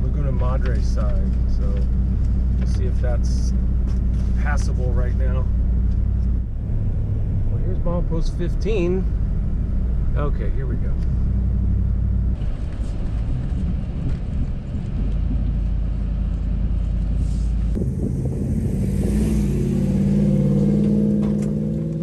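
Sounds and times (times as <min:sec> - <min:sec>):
truck engine rumbling: 0:00.0 - 0:22.0.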